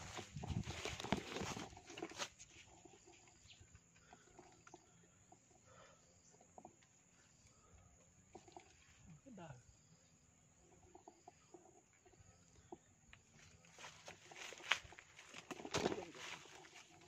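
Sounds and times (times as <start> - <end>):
leafy brush rustling and crackling: 0.0 - 3.2, 13.4 - 17.0
faint ticks: 2.8 - 9.0.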